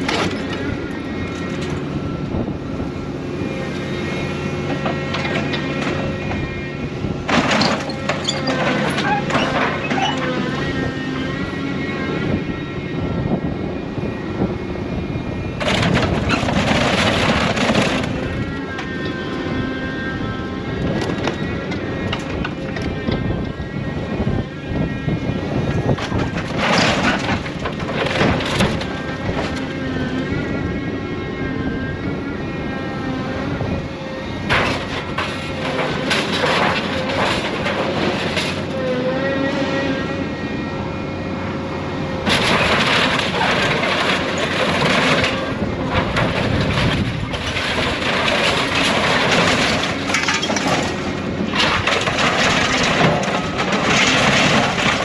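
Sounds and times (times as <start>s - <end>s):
excavator engine and hydraulics: 0.0s - 55.0s
scrap metal crashing and clanking: 7.3s - 10.4s, 15.6s - 18.4s, 26.0s - 29.6s, 34.5s - 39.0s, 42.2s - 55.0s.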